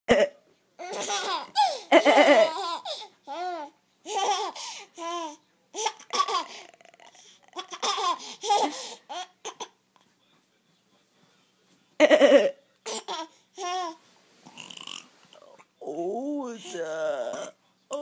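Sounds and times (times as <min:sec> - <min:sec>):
baby giggling: 0:00.8 - 0:09.8.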